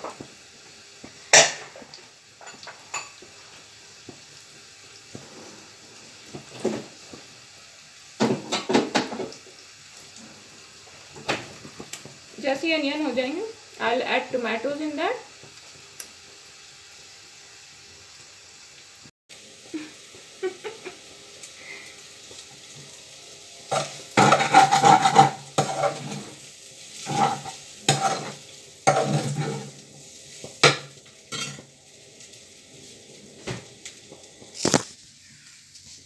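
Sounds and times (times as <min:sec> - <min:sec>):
onions sizzling: 0:00.0 - 0:36.0
spatula scraping metal pan: 0:23.7 - 0:26.4, 0:27.0 - 0:29.7.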